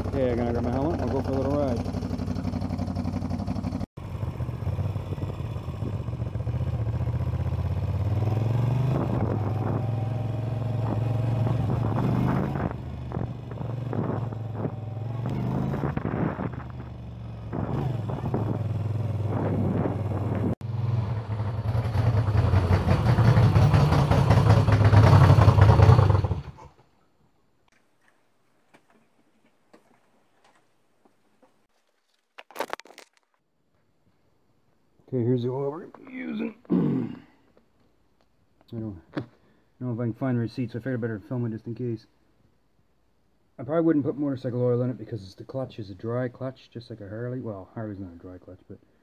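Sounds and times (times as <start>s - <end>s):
motorcycle engine revving: 0.0s - 26.6s.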